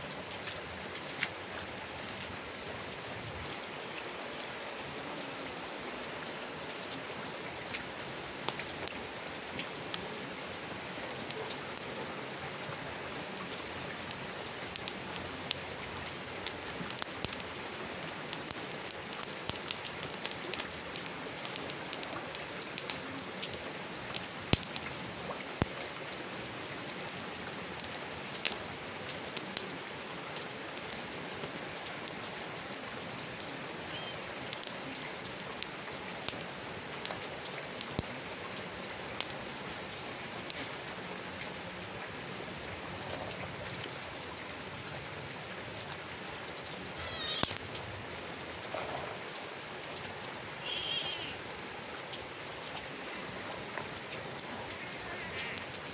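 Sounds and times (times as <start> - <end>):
steady rain falling: 0.0 - 55.9
campfire crackling and popping: 0.2 - 2.7, 7.6 - 12.0, 12.8 - 26.2, 26.8 - 33.7, 34.4 - 43.9, 45.8 - 49.6, 53.5 - 55.9
wavering animal call: 47.0 - 47.6, 50.6 - 51.4.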